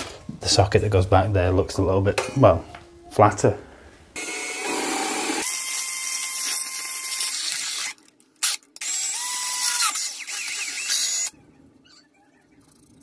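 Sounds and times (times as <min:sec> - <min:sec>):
drill motor whine: 0:04.2 - 0:07.9, 0:08.8 - 0:11.3
drill grinding metal: 0:04.2 - 0:11.3.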